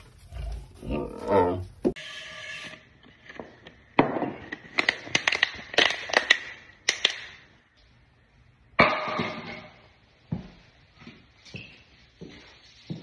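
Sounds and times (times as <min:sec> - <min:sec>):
clicks and crackles: 0:03.1 - 0:07.6
sharp crack: 0:04.0 - 0:07.6.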